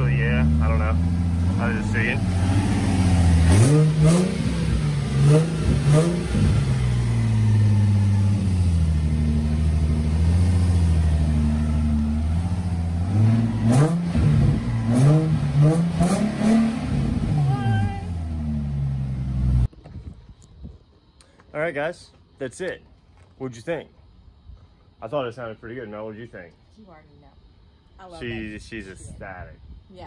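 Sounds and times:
car engine revving and idling: 0:00.0 - 0:19.7.

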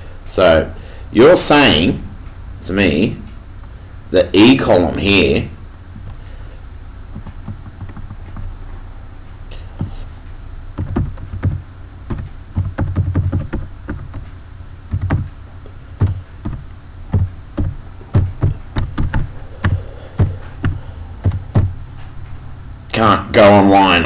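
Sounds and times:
steady low hum: 0:00.0 - 0:24.0
keyboard typing: 0:07.1 - 0:08.5, 0:10.8 - 0:15.4, 0:16.0 - 0:21.7.

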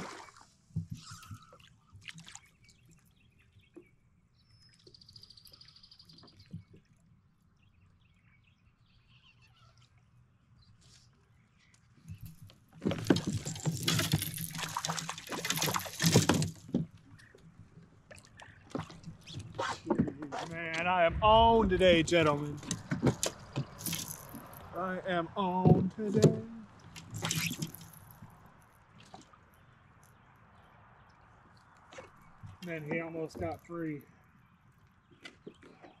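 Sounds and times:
water splashing against kayak: 0:00.0 - 0:03.0, 0:12.7 - 0:24.7.

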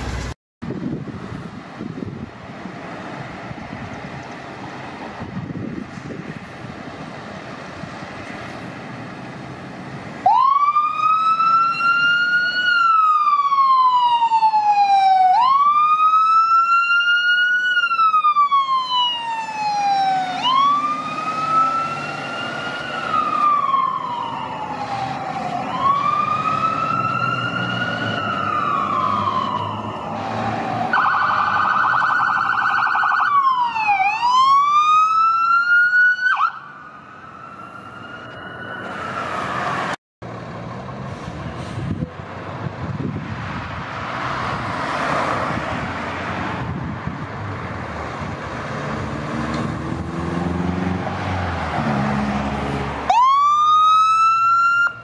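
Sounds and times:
fire truck siren wailing: 0:09.7 - 0:43.2, 0:45.3 - 0:55.0.

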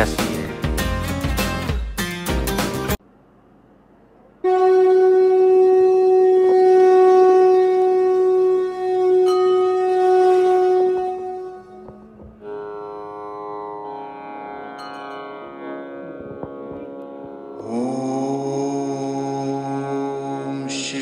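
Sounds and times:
conch shell blown: 0:04.4 - 0:20.7.

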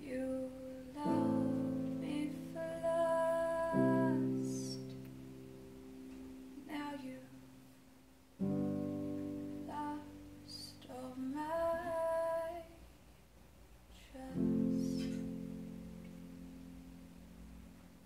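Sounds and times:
woman singing: 0:00.0 - 0:05.0, 0:06.6 - 0:07.4, 0:09.6 - 0:12.8, 0:13.9 - 0:15.4
digital piano chords: 0:00.6 - 0:12.1, 0:14.3 - 0:18.0.

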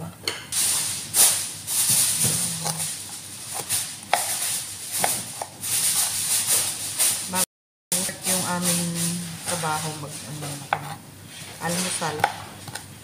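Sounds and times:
knife chopping on cutting board: 0:03.5 - 0:04.4, 0:05.0 - 0:06.1, 0:11.7 - 0:12.8.

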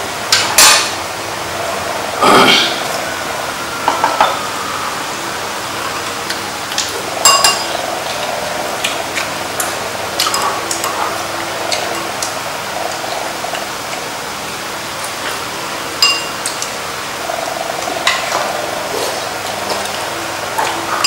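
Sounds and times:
chopsticks clinking on bowls: 0:06.8 - 0:12.3, 0:16.0 - 0:16.7.

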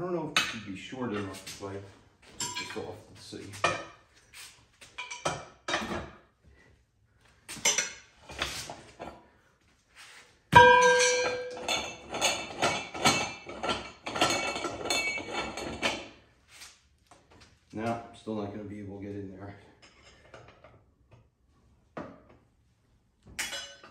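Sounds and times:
wrench clinking on metal: 0:02.4 - 0:02.9, 0:10.6 - 0:16.0, 0:23.4 - 0:23.9
loud ringing metal clang: 0:10.6 - 0:12.4.

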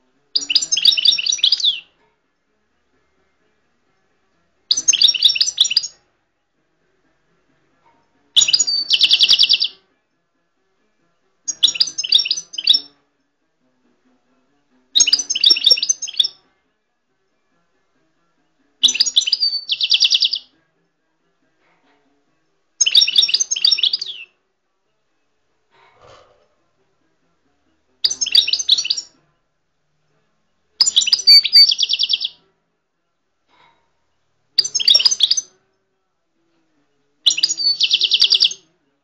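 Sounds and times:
goldfinch twittering song: 0:00.4 - 0:01.9, 0:04.7 - 0:06.0, 0:08.4 - 0:09.7, 0:11.5 - 0:12.9, 0:15.0 - 0:16.4, 0:18.8 - 0:20.5, 0:22.8 - 0:24.2, 0:28.0 - 0:29.1, 0:30.8 - 0:32.4, 0:34.6 - 0:35.5, 0:37.3 - 0:38.6.

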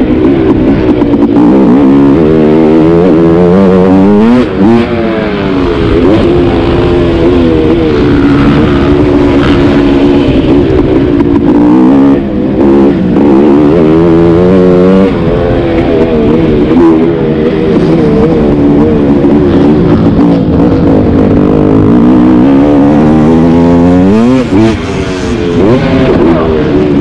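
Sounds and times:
dirt bike engine revving: 0:00.0 - 0:27.0.

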